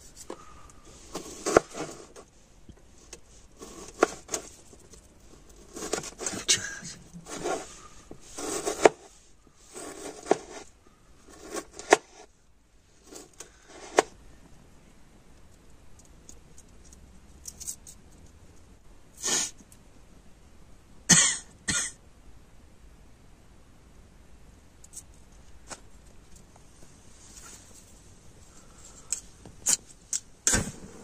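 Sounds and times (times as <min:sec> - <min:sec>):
person coughing: 0:06.4 - 0:07.0, 0:21.1 - 0:22.0.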